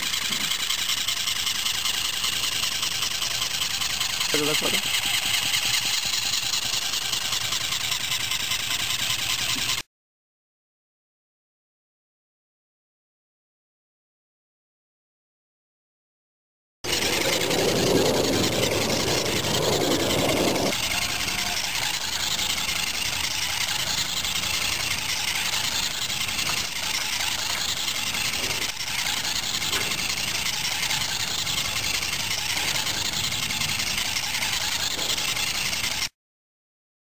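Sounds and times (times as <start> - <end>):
small electric motor whirring: 0.0 - 9.9, 16.8 - 36.2.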